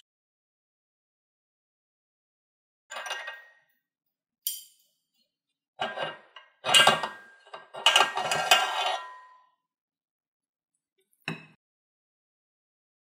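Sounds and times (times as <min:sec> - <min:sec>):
kitchen items clinking and clattering: 0:02.9 - 0:03.5, 0:05.8 - 0:09.3.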